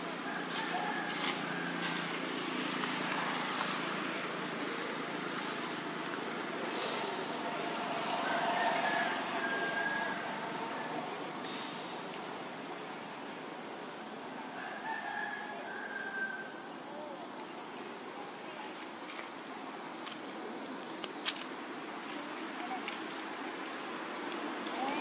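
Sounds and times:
high-pitched insect drone: 0.0s - 25.0s
faint rooster crowing: 0.2s - 3.5s, 7.4s - 11.3s, 14.5s - 16.7s.

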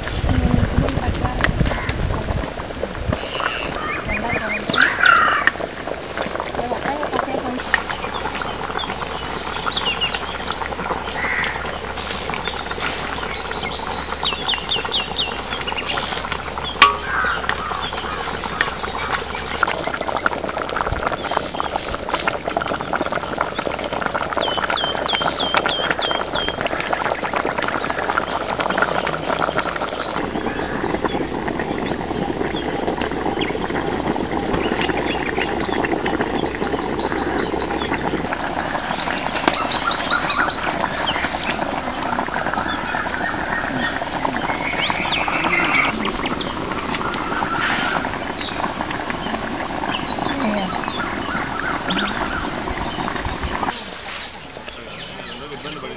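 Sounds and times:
curry bubbling in a pan: 0.0s - 55.9s
birds chirping in trills: 1.5s - 5.5s, 6.6s - 55.9s
sharp knock: 16.8s - 17.6s.

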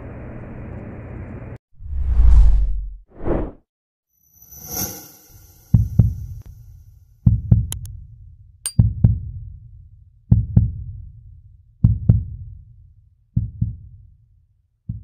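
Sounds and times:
heartbeat thumps: 7.3s - 7.9s, 8.8s - 9.4s, 10.3s - 11.0s, 11.8s - 12.4s, 13.4s - 13.9s.

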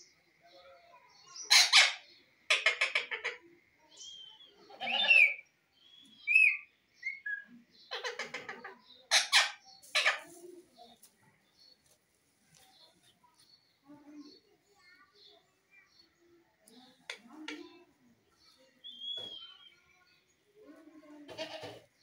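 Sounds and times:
parakeet chattering: 1.5s - 3.4s, 7.9s - 10.2s.

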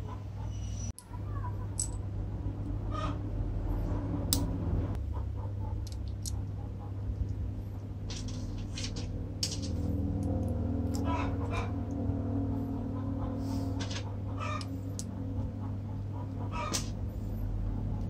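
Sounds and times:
steady low hum: 0.0s - 18.0s
small steel parts clicking: 1.7s - 2.0s, 5.8s - 6.5s, 14.6s - 15.2s.

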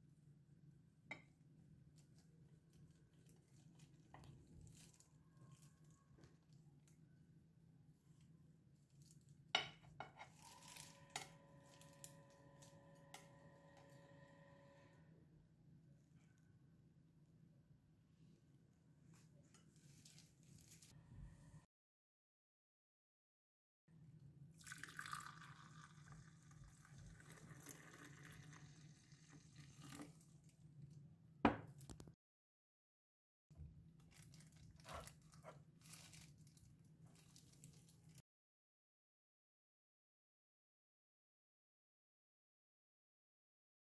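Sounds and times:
milk pouring into a mug: 24.6s - 30.5s.

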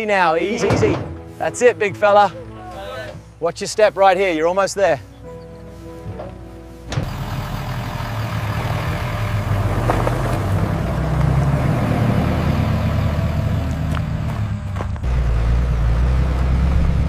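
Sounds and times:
tyres on gravel: 0.0s - 15.2s
truck engine accelerating: 5.2s - 17.0s.

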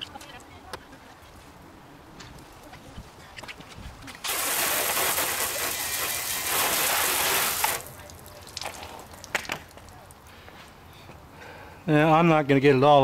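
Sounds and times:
hose spraying water on car: 4.2s - 9.2s.

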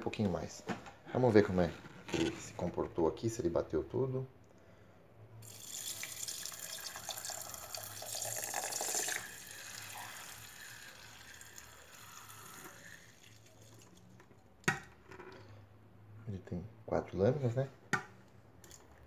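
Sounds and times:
liquid splashing and draining: 5.4s - 14.1s.

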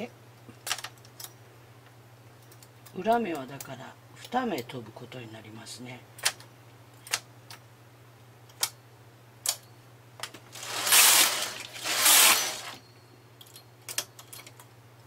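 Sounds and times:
scraping rustles: 10.5s - 12.8s.

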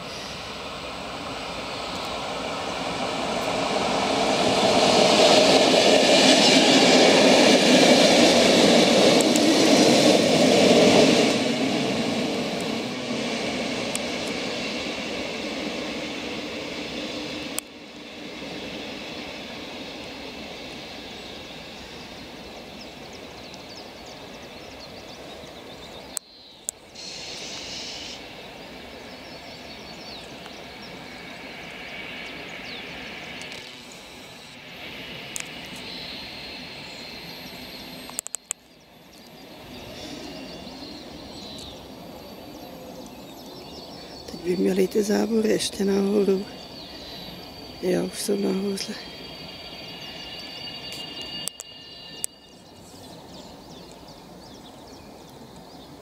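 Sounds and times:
train rumble and hiss: 0.0s - 56.0s
birds chirping: 20.8s - 56.0s.

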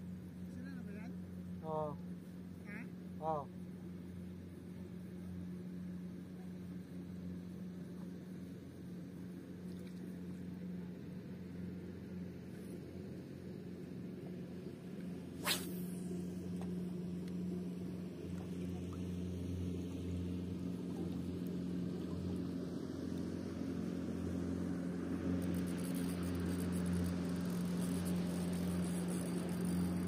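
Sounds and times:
distant motorboat engine humming: 0.0s - 30.0s
faint water hiss: 14.6s - 20.1s.

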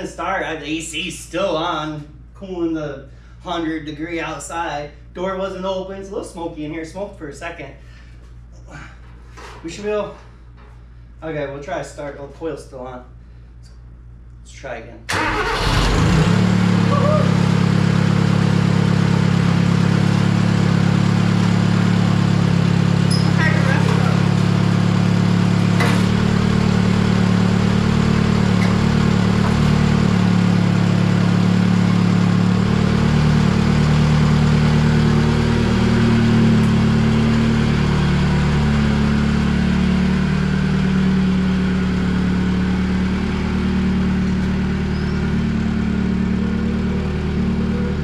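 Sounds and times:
tractor engine running: 15.1s - 48.0s.

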